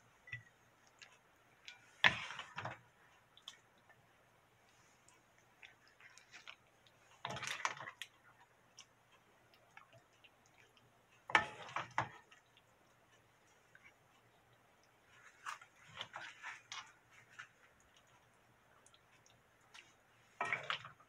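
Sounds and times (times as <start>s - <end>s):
spatula scraping a pot: 11.3s - 12.2s.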